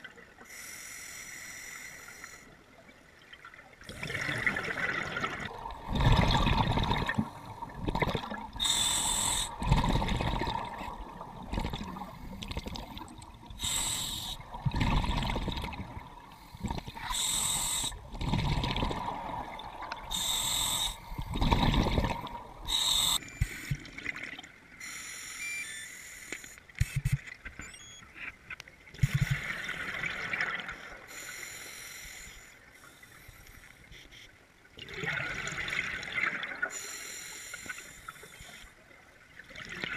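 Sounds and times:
regulator hissing inhalations: 0.5 - 2.5, 8.6 - 9.6, 13.6 - 14.4, 16.4 - 18.0, 20.1 - 21.4, 22.6 - 23.7, 24.8 - 26.6, 31.1 - 33.7, 36.7 - 38.6
bubbling exhalations underwater: 3.9 - 8.6, 21.3 - 22.5.

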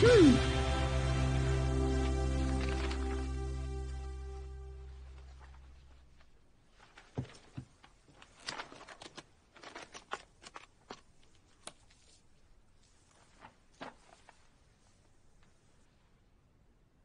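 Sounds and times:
book pages rustling: 2.1 - 3.7, 4.8 - 16.0.

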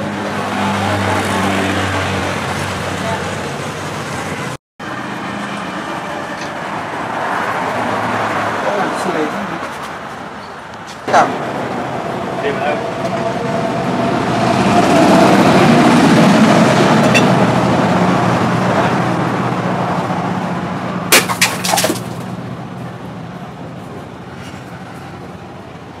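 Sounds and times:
sword slicing plastic bottle: 21.1 - 22.3.

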